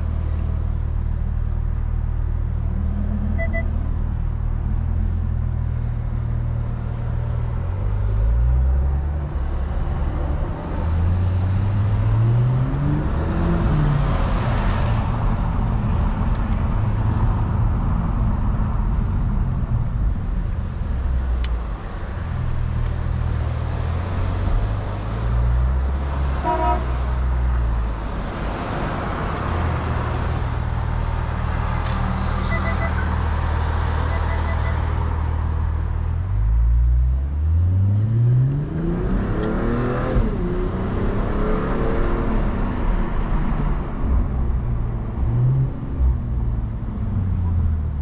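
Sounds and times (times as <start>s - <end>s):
road noise drone: 0.0s - 48.0s
car horn toot: 3.4s - 3.8s, 26.4s - 27.0s, 32.5s - 33.1s, 34.1s - 34.9s.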